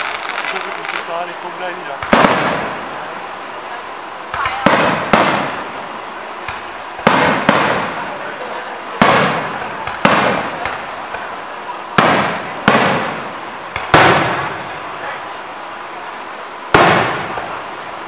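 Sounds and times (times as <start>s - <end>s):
firework shells bursting: 0.0s - 8.2s, 8.9s - 15.4s, 16.6s - 17.7s.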